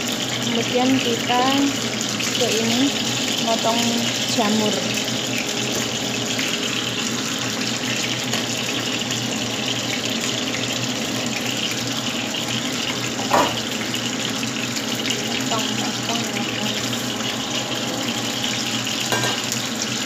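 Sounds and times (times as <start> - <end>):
fish sizzling in hot oil: 0.0 - 20.0.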